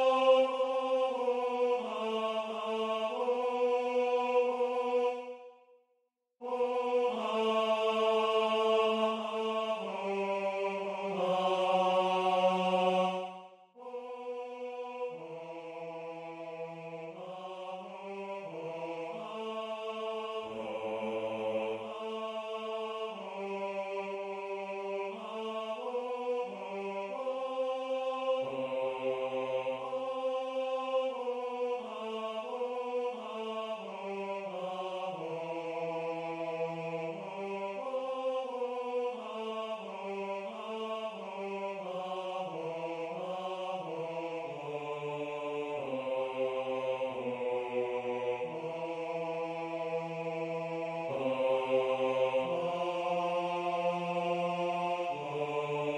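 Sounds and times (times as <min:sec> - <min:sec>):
computer-rendered choir singing vowels: 0:00.0 - 0:05.8, 0:06.4 - 0:55.9.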